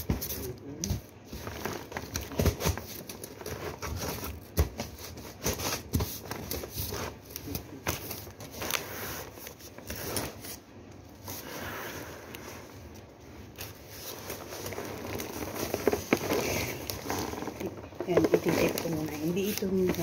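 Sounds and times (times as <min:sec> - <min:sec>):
plastic wrap crinkling: 0:00.0 - 0:20.0.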